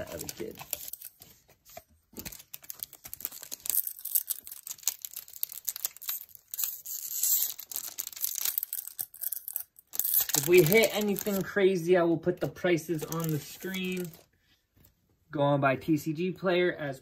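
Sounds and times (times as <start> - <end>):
foil wrapper tearing and crinkling: 0.0 - 1.2, 2.2 - 11.5, 13.0 - 14.3.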